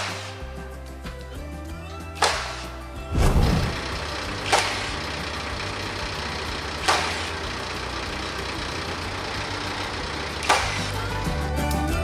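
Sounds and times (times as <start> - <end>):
nail gun shots: 2.2 - 5.2, 6.8 - 7.5, 10.4 - 11.0
diesel engine idling: 3.1 - 11.9.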